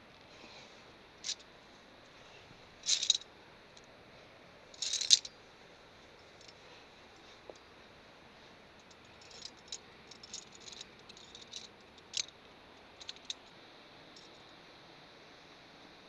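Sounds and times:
carabiners clicking on steel cable: 0:02.8 - 0:03.2, 0:04.8 - 0:05.3, 0:08.8 - 0:12.4, 0:13.0 - 0:13.5.

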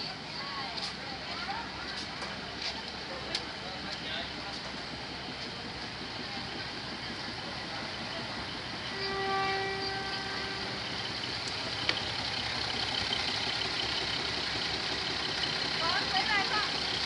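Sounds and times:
train horn blast: 0:08.8 - 0:10.9.

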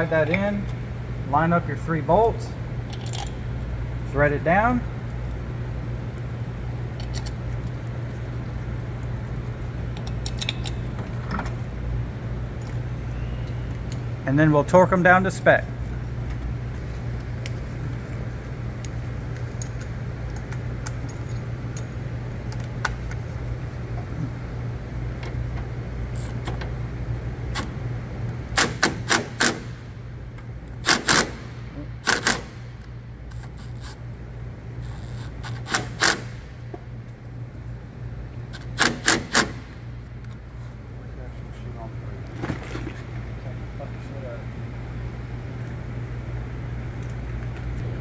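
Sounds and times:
steady low hum: 0:00.0 - 0:48.0
impact wrench rattling bursts: 0:28.4 - 0:30.0, 0:30.6 - 0:34.0, 0:34.8 - 0:36.6, 0:38.4 - 0:39.8.

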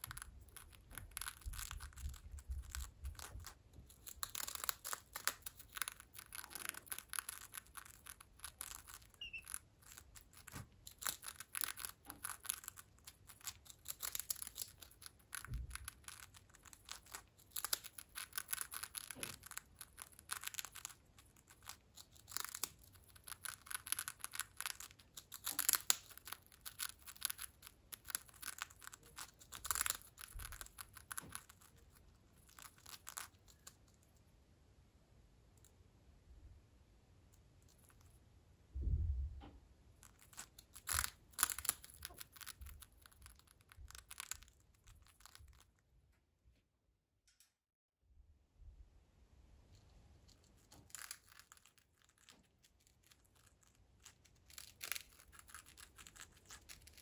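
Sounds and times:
parrot crunching a cracker: 0:00.0 - 0:34.2, 0:40.0 - 0:45.9, 0:49.9 - 0:57.0.

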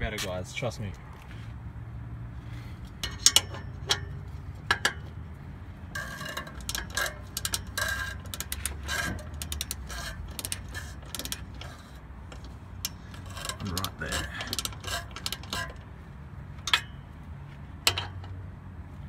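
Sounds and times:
ratchet wrench clicking: 0:02.8 - 0:05.0, 0:06.0 - 0:15.9, 0:16.5 - 0:17.0.

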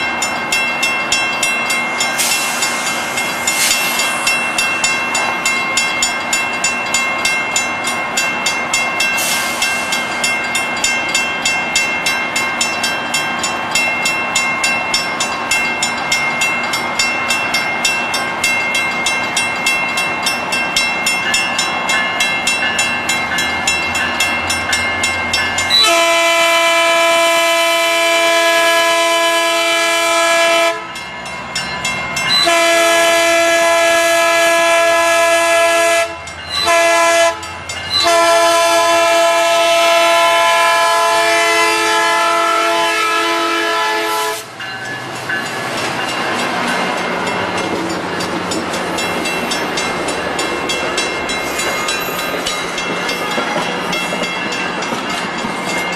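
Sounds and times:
crossing bell ringing rapidly: 0:00.0 - 0:55.9
train coaches rumbling and clacking: 0:00.0 - 0:55.9
locomotive air horn chord: 0:25.7 - 0:31.0, 0:32.3 - 0:44.5.

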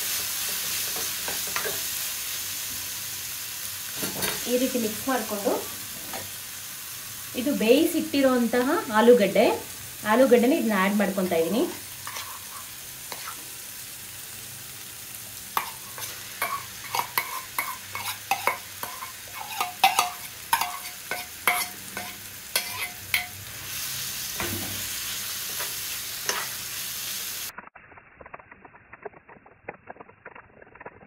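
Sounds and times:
metal spoon scraping a pan: 0:00.0 - 0:02.4, 0:04.0 - 0:06.4, 0:11.2 - 0:13.8, 0:15.5 - 0:27.1
food frying sizzle: 0:00.0 - 0:31.0.

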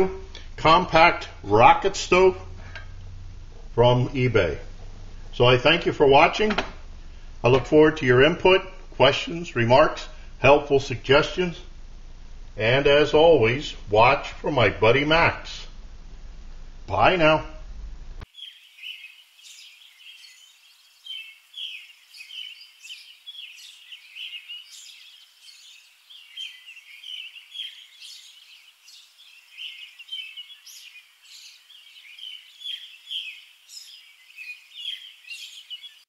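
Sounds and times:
faint steady hiss: 0:00.0 - 0:36.0
small birds chirping and singing: 0:18.2 - 0:36.0.

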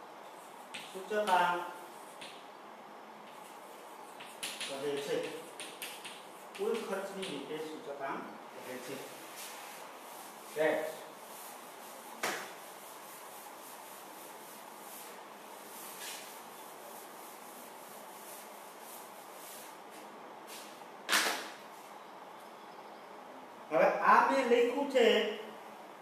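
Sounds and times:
duster rubbing chalkboard: 0:03.3 - 0:07.4, 0:08.6 - 0:20.7.

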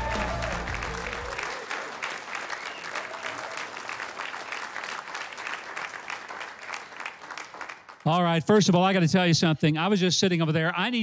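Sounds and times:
backing music: 0:00.0 - 0:01.4
audience applauding: 0:00.0 - 0:08.1.

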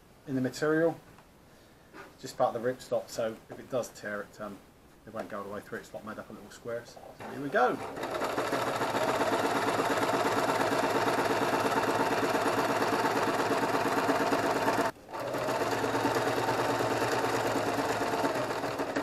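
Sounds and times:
electric sewing machine running: 0:07.3 - 0:19.0.

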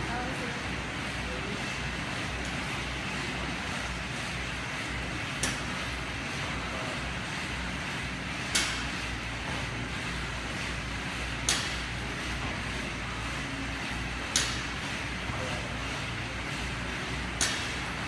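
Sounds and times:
barbell clicks: 0:14.3 - 0:14.6, 0:17.4 - 0:17.7.

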